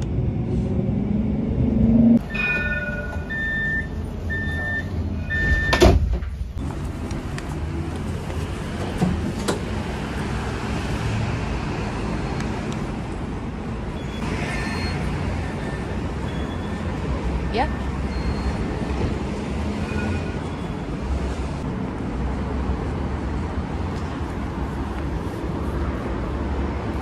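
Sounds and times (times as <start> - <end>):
tram rumbling: 0.0 - 27.0
high beeps: 2.2 - 5.8
two-note door chime: 2.2 - 5.8.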